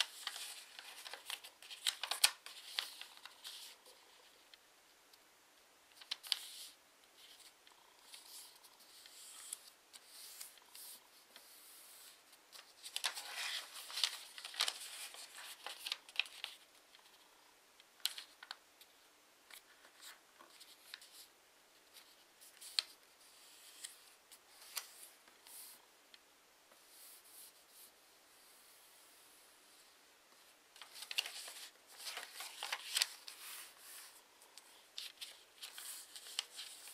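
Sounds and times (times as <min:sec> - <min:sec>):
paper rustling and crackling: 0:00.0 - 0:04.6, 0:05.9 - 0:17.2, 0:18.0 - 0:18.6, 0:19.5 - 0:25.8, 0:30.7 - 0:36.9.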